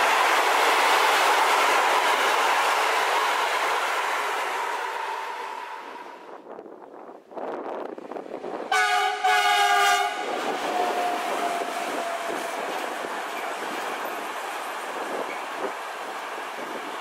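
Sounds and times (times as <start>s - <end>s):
freight train rumbling past: 0.0s - 17.0s
locomotive horn: 8.7s - 12.4s.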